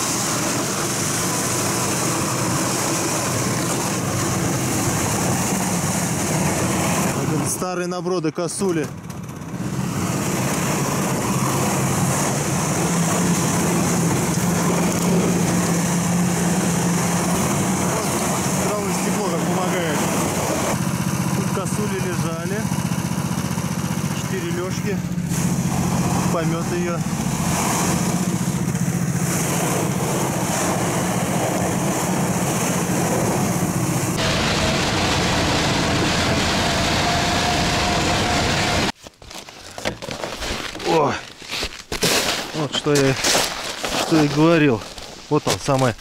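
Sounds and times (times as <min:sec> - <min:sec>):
snow vehicle engine running: 0:00.0 - 0:07.8, 0:08.5 - 0:39.0.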